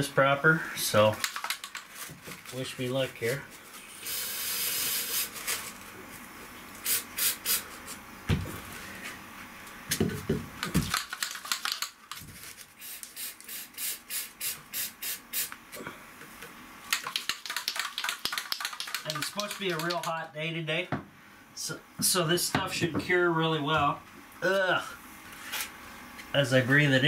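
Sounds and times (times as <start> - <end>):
spray coating hissing: 3.9 - 5.4, 6.8 - 7.9, 12.8 - 15.6.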